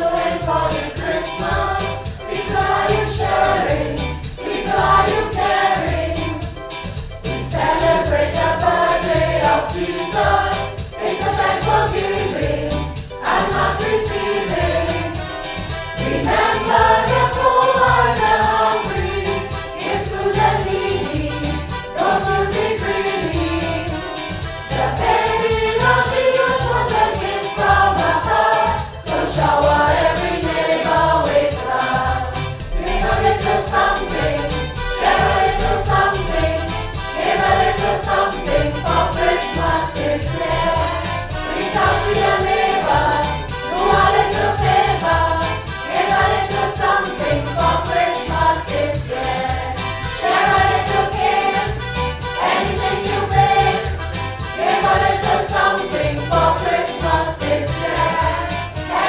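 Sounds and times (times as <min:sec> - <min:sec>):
choir singing: 0:00.0 - 0:06.6, 0:07.2 - 0:59.0
music with steady beat: 0:00.0 - 0:59.0.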